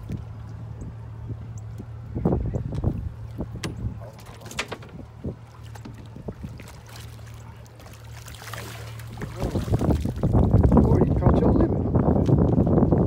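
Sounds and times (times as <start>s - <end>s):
steady low hum: 0.0s - 13.0s
fish splashing in water: 4.0s - 10.8s.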